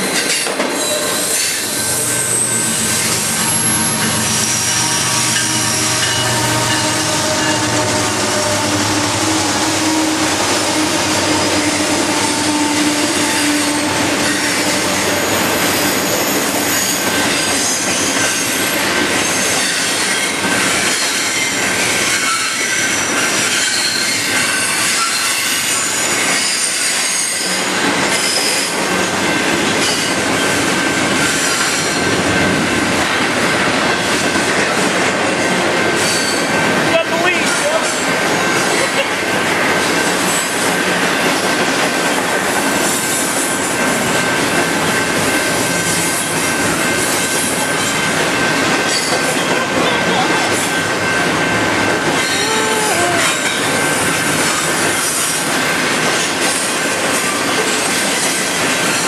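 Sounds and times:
high wheel squeals: 0.0 - 28.8, 36.0 - 36.6, 52.1 - 55.4
locomotive engines: 0.0 - 59.0
wheel-on-rail noise: 0.0 - 59.0.

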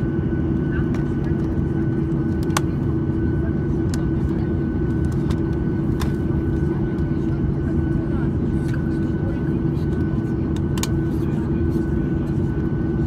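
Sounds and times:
airliner cabin drone: 0.0 - 13.0.

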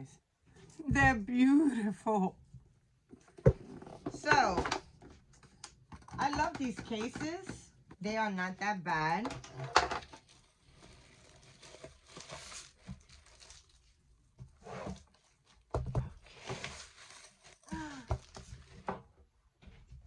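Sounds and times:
plastic packaging crinkling: 10.0 - 14.2, 14.9 - 18.7.

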